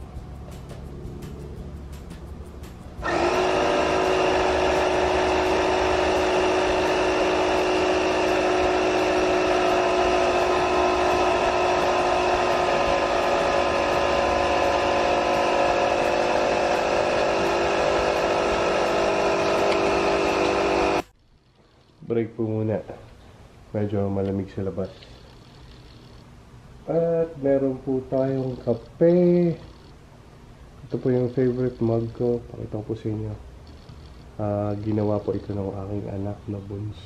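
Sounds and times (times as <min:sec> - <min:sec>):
air compressor humming: 0:02.8 - 0:21.1.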